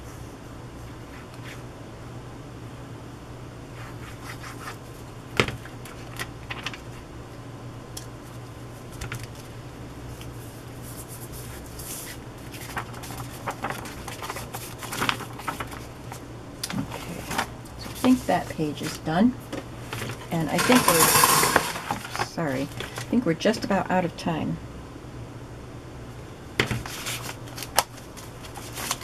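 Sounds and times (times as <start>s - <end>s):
steady low hum: 0.0s - 29.0s
paper rustling: 3.8s - 7.1s, 8.2s - 9.5s, 10.1s - 19.0s, 19.8s - 23.1s, 26.6s - 29.0s.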